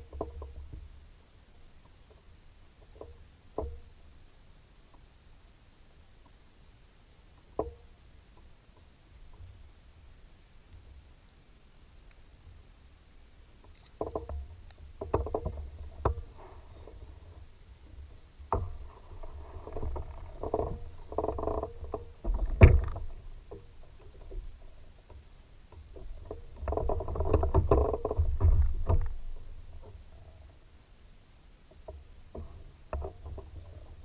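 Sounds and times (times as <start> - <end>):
paddle strokes: 13.6 - 30.6.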